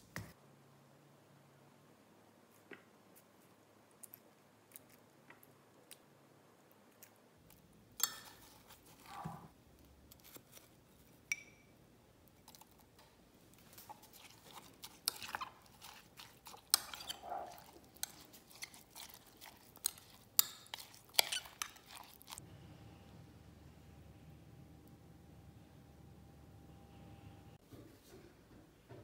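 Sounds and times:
metal spoon clinking on glass: 11.3 - 11.7.

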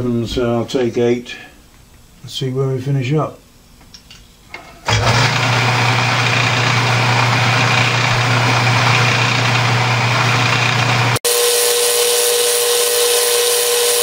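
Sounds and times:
lathe motor hum: 4.8 - 14.0
hiss of metal cutting: 11.3 - 14.0.

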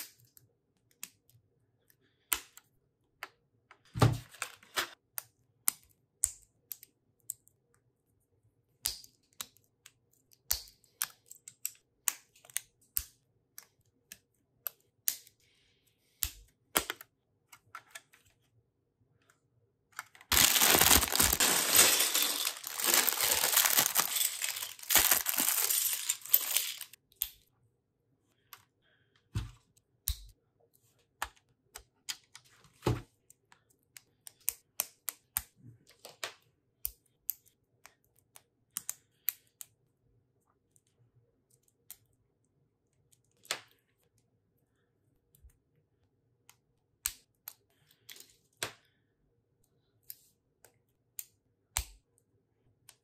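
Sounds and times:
plastic bag torn open: 20.3 - 27.0
plastic bricks clicking together: 20.3 - 27.0
plastic pieces spilling and rattling: 20.3 - 27.0.

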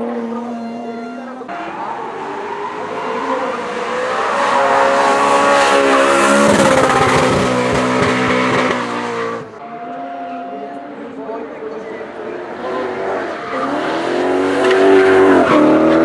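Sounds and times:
car engine running hard: 1.5 - 9.7.

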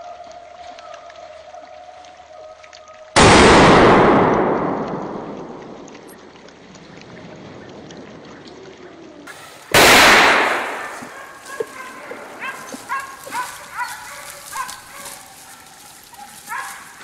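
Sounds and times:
rifle shot echoing: 3.2 - 5.9, 9.7 - 11.2.

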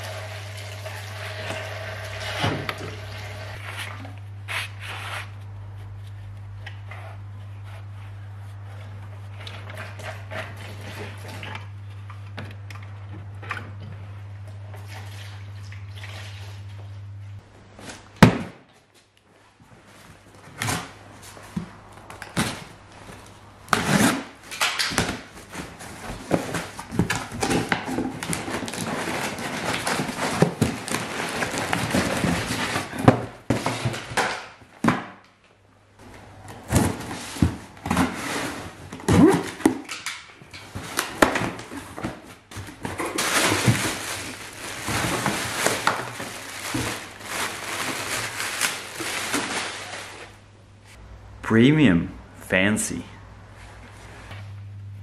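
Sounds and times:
cardboard flaps rustling: 36.0 - 39.9, 40.6 - 50.4
bubble wrap crinkling: 40.7 - 50.4.

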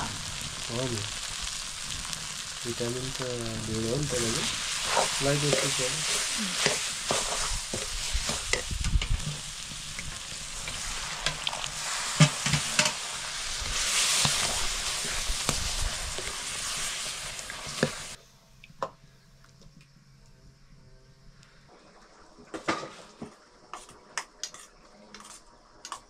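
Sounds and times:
food sizzling in a pan: 0.0 - 18.2, 21.8 - 26.0
spoon scraping a pan: 4.4 - 15.2, 23.7 - 26.0.

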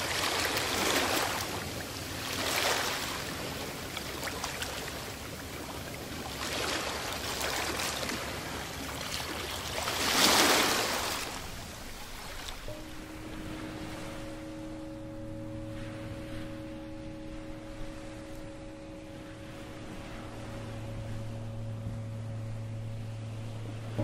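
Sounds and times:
ambient rushing noise music: 12.8 - 24.0.

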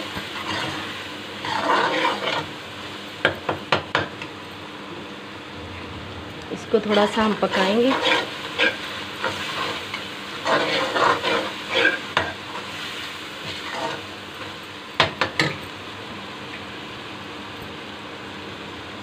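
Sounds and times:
masala sizzling in oil: 0.0 - 5.6, 6.5 - 19.0
metal spoon scraping a wok: 0.4 - 2.5, 6.8 - 12.7.

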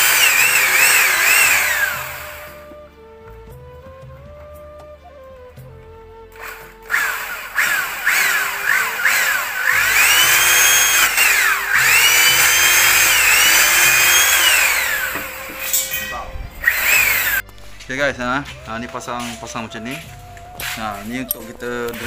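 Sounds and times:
drill boring through wood: 0.0 - 2.8, 6.3 - 17.4.

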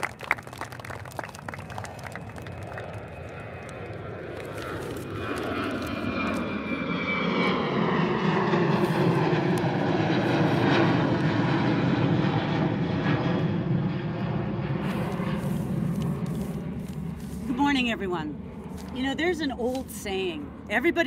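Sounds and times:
airplane flying overhead: 0.0 - 21.0.

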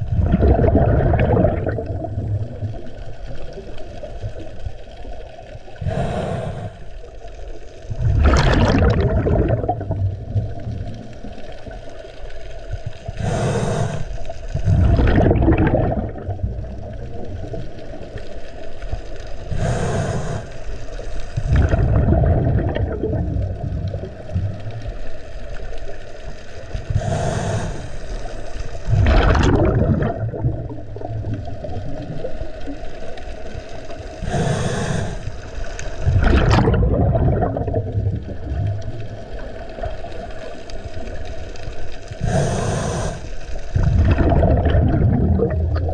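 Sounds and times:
exhaled bubbles rushing: 0.0 - 45.9
regulator inhalation hiss: 5.8 - 6.9, 13.2 - 14.3, 19.5 - 20.9, 26.9 - 28.4, 34.2 - 35.6, 42.2 - 43.4.

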